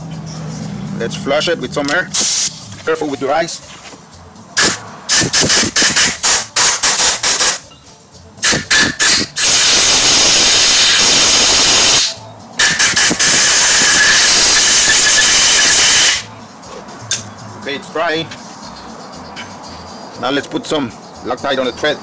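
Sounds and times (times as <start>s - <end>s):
air blow gun blasts: 4.6s - 7.6s, 8.4s - 16.2s.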